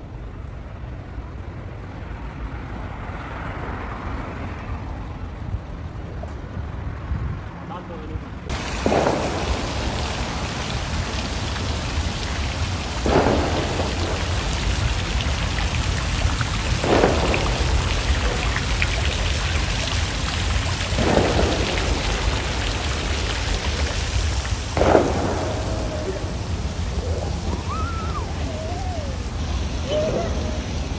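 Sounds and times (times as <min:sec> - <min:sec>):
fountain water splashing: 0:08.4 - 0:30.9.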